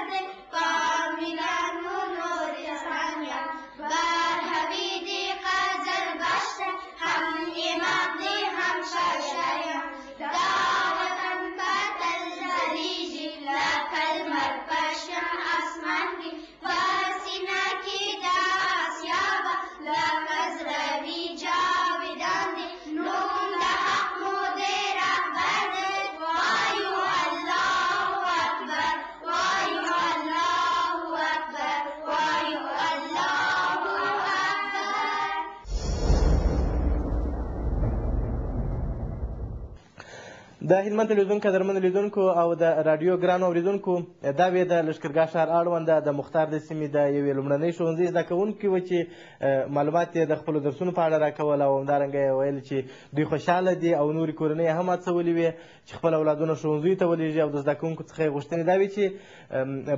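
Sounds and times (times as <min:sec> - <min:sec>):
children singing: 0:21.5 - 0:35.7.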